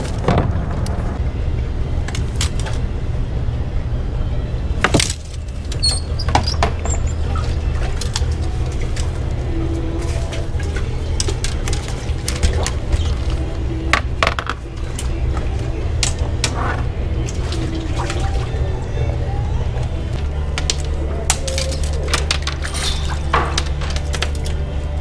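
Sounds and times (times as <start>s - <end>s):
boat motor humming: 0.0s - 25.0s
water splashing against hull: 7.1s - 18.9s.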